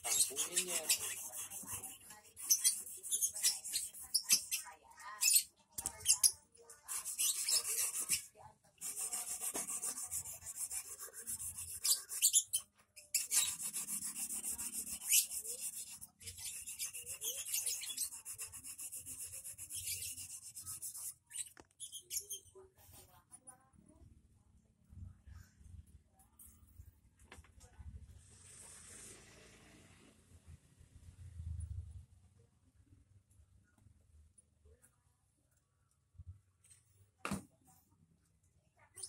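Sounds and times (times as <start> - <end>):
sharpening stone scraping hook: 0.0 - 4.6, 9.0 - 22.4.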